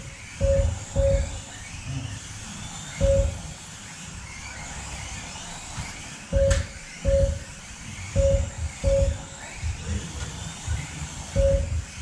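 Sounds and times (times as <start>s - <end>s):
small electric motors whining: 0.0s - 12.0s
deep thump with steady tone: 0.4s - 1.4s, 3.0s - 3.4s, 6.4s - 7.4s, 8.2s - 9.8s, 11.4s - 11.9s.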